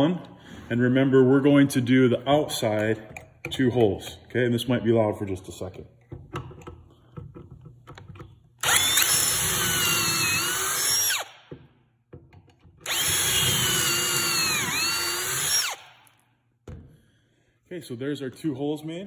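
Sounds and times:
cordless drill whining: 8.6 - 11.5, 12.8 - 16.1.

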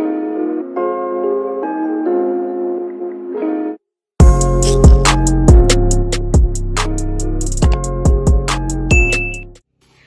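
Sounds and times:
soft instrumental music: 0.0 - 9.7
beat with heavy kick drum: 4.2 - 6.8, 7.4 - 9.4.

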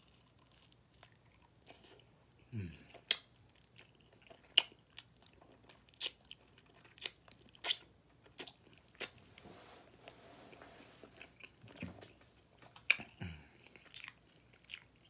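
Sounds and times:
man chewing ribs: 0.0 - 9.4, 10.1 - 15.0.

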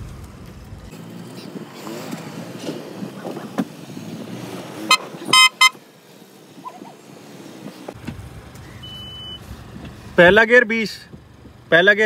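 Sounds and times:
low rumble of cars rolling: 0.0 - 12.0
car horn tooting: 4.9 - 5.8.

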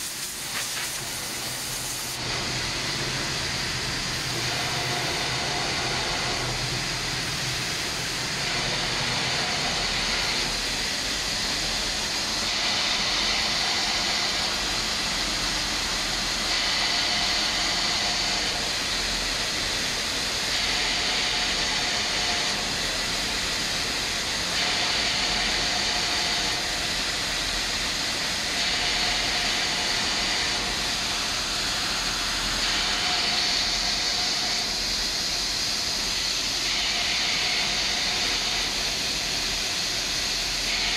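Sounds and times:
compressed air hissing: 0.0 - 20.6.

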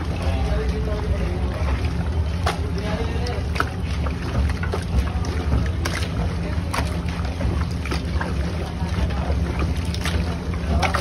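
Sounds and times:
hands squelching wet chicken: 0.0 - 11.0
steady low rumble: 0.0 - 11.0.

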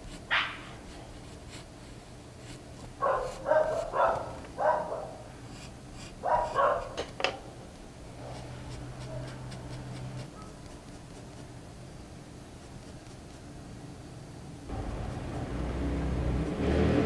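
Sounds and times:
pencil scratching on paper: 0.0 - 4.4, 5.4 - 7.1, 8.1 - 11.7, 12.4 - 13.6
low steady hum: 7.4 - 16.7.

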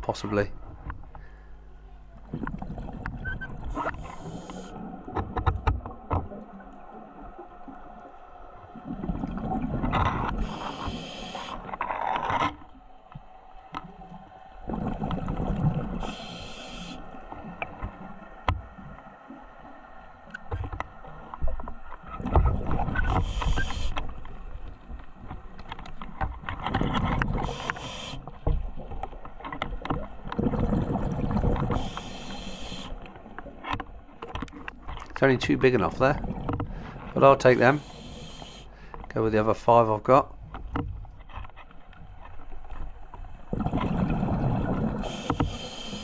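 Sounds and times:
diver breathing through regulator: 1.2 - 1.7, 3.8 - 4.8, 10.3 - 11.7, 16.0 - 17.2, 23.1 - 24.0, 27.3 - 28.3, 31.6 - 33.0, 36.6 - 39.1, 45.0 - 46.0.

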